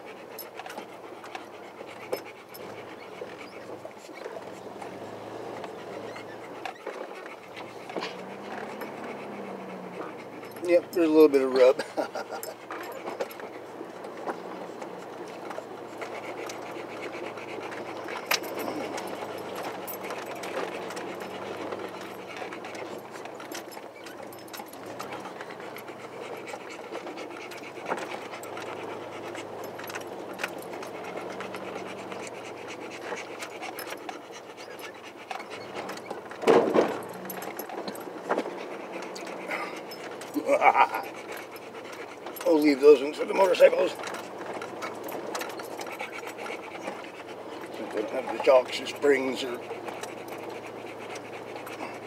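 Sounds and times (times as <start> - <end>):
vehicle engine running low: 0.0 - 52.0
tyres rumbling on dirt: 0.8 - 52.0
body knocks and rattles: 35.5 - 40.6.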